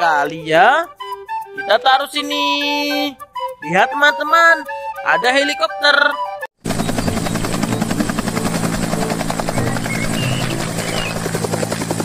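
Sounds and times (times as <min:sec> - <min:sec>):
helicopter engine tone: 0:06.6 - 0:12.0
helicopter rotor chopping: 0:06.6 - 0:12.0.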